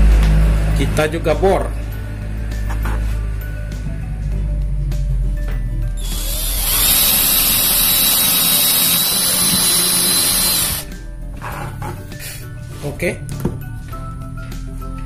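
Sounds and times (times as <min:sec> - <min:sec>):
cordless drill whining: 0:06.0 - 0:10.9.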